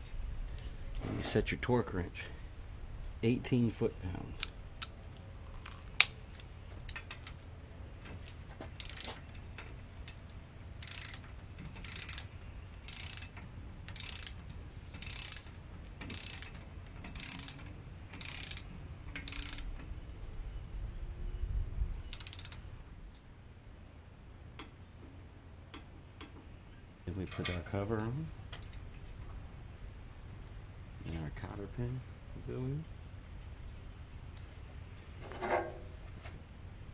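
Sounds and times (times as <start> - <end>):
torque wrench click: 8.8 - 9.1, 10.8 - 11.2, 11.8 - 12.3, 12.9 - 14.4, 15.0 - 15.5, 16.1 - 16.5, 17.1 - 17.6, 18.2 - 18.6, 19.2 - 19.7, 22.1 - 23.2
ratchet clicking: 8.8 - 19.8, 22.1 - 22.6.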